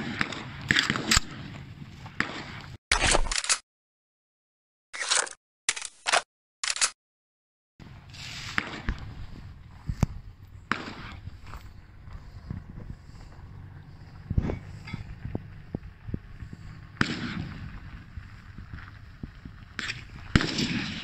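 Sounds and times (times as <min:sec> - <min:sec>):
gunshots: 0:00.0 - 0:03.6, 0:08.4 - 0:09.1, 0:10.7 - 0:11.4, 0:16.9 - 0:17.9, 0:19.8 - 0:21.0
outdoor range ambience: 0:00.0 - 0:03.6, 0:05.0 - 0:07.0, 0:07.8 - 0:21.0.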